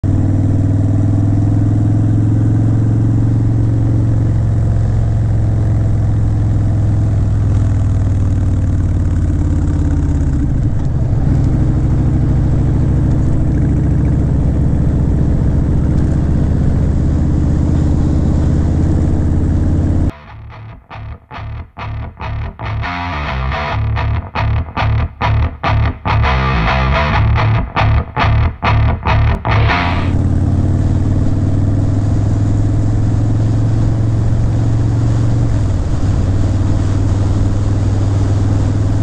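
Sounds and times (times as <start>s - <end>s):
motorcycle engine running: 0.1s - 20.1s, 21.6s - 37.6s
electric guitar music: 19.8s - 30.5s.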